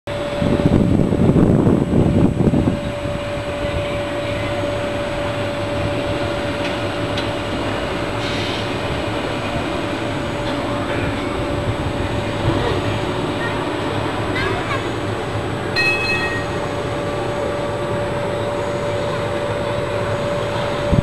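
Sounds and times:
wind rumbling on microphone: 0.1s - 6.4s, 20.4s - 21.0s
steady outdoor noise: 0.1s - 21.0s
thin constant whine: 0.1s - 21.0s.

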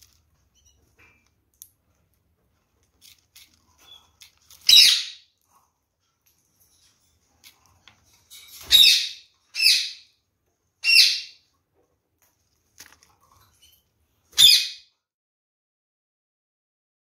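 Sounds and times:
parakeet calls: 4.6s - 5.3s, 8.7s - 10.1s, 10.8s - 11.4s, 14.4s - 14.8s.

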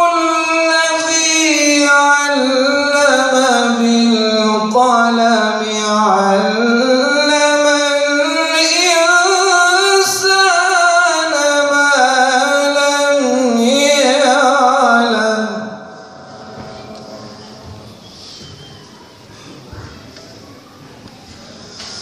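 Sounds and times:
man chanting melodically: 0.0s - 18.6s.

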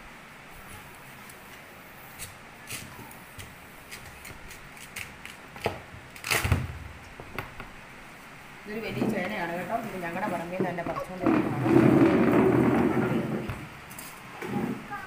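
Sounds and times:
knife cutting and scraping skin: 3.8s - 5.4s.

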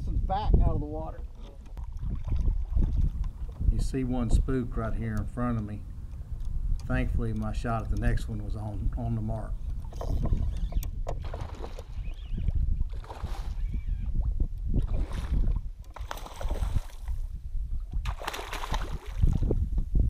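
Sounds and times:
low steady rumble: 1.9s - 11.0s
fish splashing at water surface: 18.0s - 19.5s.

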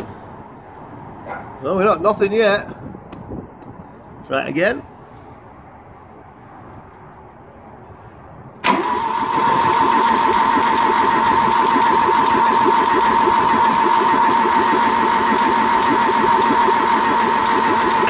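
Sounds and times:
starter motor cranking engine: 8.6s - 18.0s.

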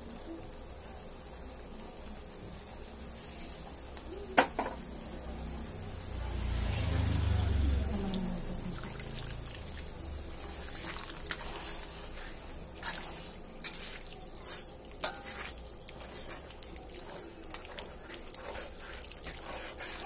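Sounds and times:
cream trickling and splashing: 6.4s - 20.0s
metal spatula scraping pan: 10.4s - 20.0s.

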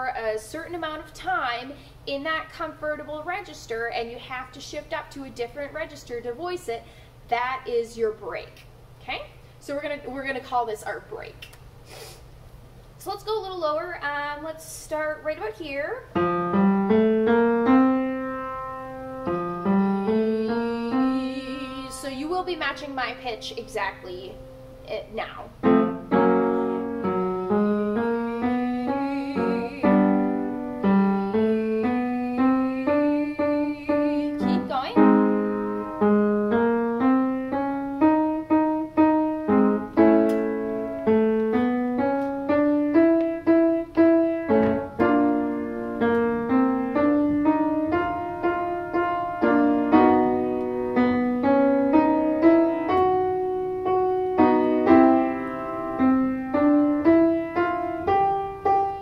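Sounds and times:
piano playing rising figure: 16.2s - 24.9s, 25.5s - 59.0s.

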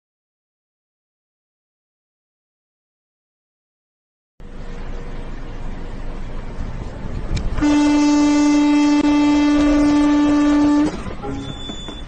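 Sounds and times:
road and engine rumble: 4.4s - 12.0s
vehicle horn long blast: 7.6s - 12.0s.

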